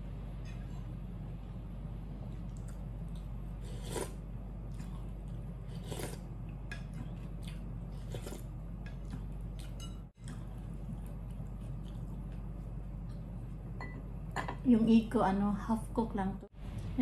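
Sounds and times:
low hum: 0.0 - 17.0
spoon scraping and chewing: 3.2 - 12.6
slurping broth: 3.6 - 4.2, 5.6 - 6.3, 7.9 - 8.5.

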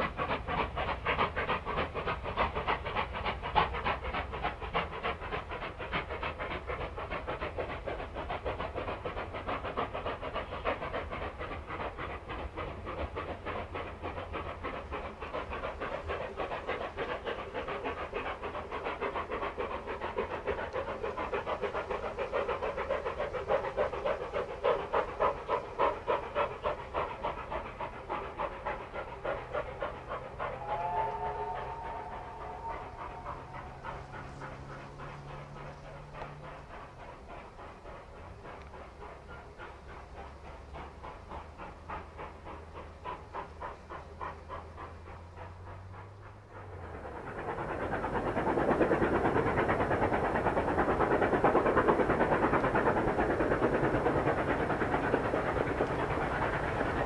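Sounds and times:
steam locomotive exhaust beats: 0.0 - 57.0
steam whistle chord: 30.6 - 34.2.

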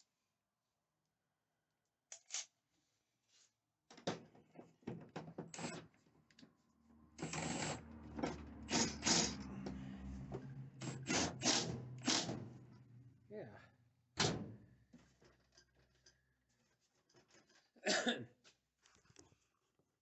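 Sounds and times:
cordless drill running: 7.2 - 7.8, 8.6 - 9.4, 10.8 - 12.3.

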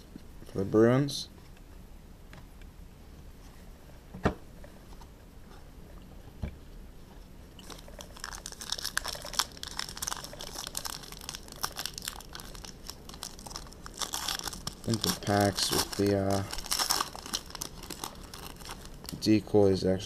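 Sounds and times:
foil pack crinkling and tearing: 7.6 - 19.3.

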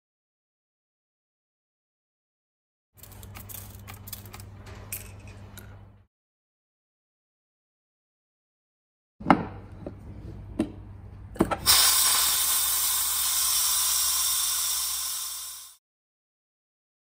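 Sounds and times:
gas hissing from keg: 11.6 - 15.8.

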